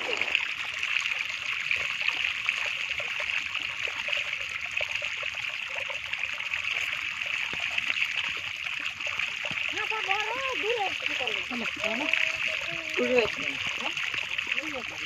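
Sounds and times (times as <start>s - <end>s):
small fish splashing: 0.0s - 0.8s
shallow water running: 0.0s - 15.0s.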